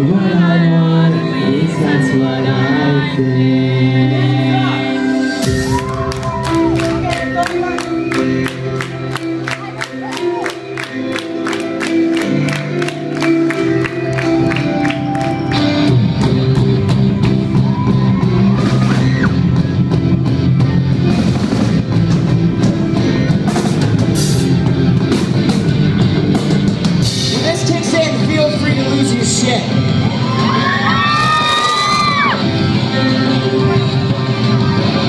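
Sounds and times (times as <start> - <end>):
person singing: 0.0 - 8.2
bass guitar: 0.0 - 35.0
electric guitars: 0.0 - 35.0
drums: 5.4 - 9.4, 14.1 - 35.0.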